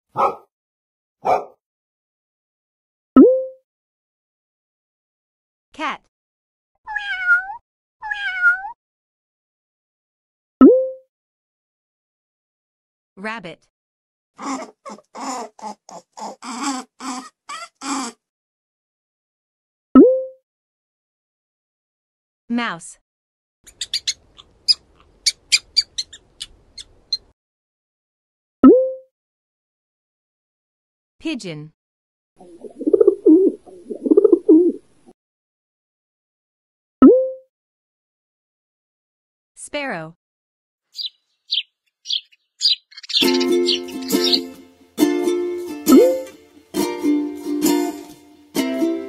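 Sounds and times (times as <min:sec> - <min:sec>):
cat meowing: 0:06.9 - 0:08.8
mouse squeaking: 0:23.7 - 0:27.3, 0:41.0 - 0:44.5.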